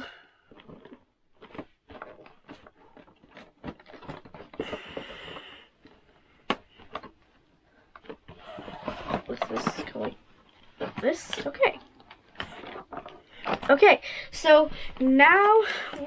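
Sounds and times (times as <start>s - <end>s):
cardboard rustling scrape: 8.1s - 13.8s.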